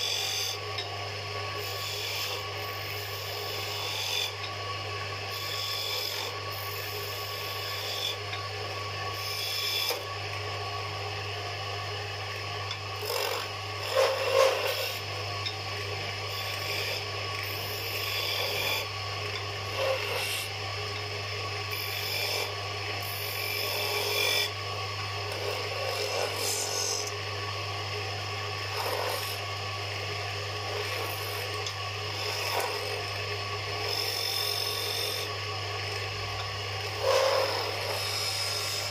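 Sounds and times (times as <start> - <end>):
wood lathe motor hum: 0.0 - 38.9
chisel scraping spinning wood: 1.6 - 4.6, 5.2 - 8.4, 9.1 - 10.1, 12.7 - 27.2, 28.6 - 29.5, 30.6 - 38.9.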